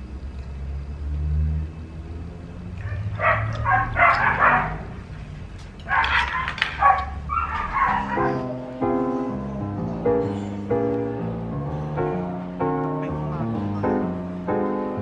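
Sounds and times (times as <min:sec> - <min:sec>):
dog barking and yapping: 0:02.8 - 0:05.0, 0:05.8 - 0:08.6
music: 0:07.7 - 0:15.0.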